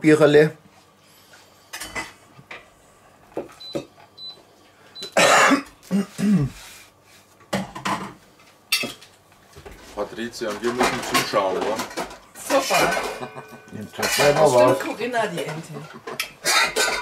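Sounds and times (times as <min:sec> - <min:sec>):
man coughing loudly: 0:05.2 - 0:06.6, 0:16.4 - 0:17.0.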